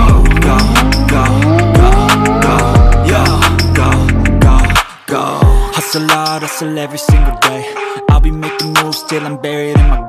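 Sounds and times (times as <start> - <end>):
deep kick drum: 0.0 - 4.8, 5.4 - 5.7, 7.1 - 7.4, 8.1 - 8.4
person rapping: 0.0 - 10.0
synth melody: 0.4 - 4.8.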